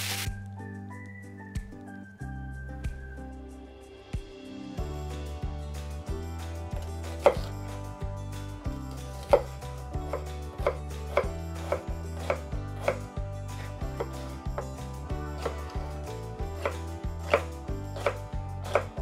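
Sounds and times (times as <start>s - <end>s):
knife chopping on wooden board: 6.8s - 7.6s, 9.2s - 14.8s, 15.4s - 15.9s, 16.6s - 19.0s.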